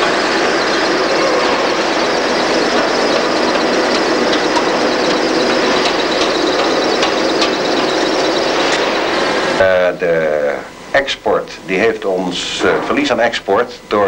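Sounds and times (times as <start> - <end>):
factory machinery running: 0.0 - 14.0.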